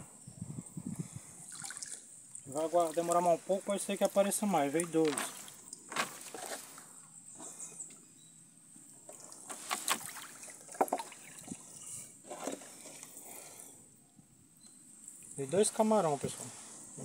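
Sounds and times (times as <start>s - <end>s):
water dripping and trickling: 1.4s - 6.9s, 9.0s - 11.9s
sharp splashes: 1.5s - 3.4s, 9.2s - 11.4s.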